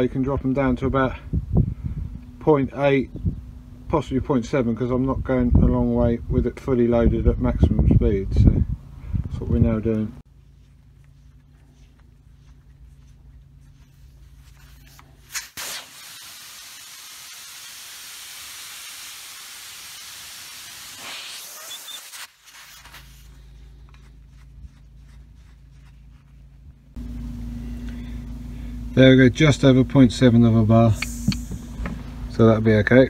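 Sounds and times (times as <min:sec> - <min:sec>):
air hissing from tyre valve: 0:15.2 - 0:23.4, 0:30.9 - 0:32.2.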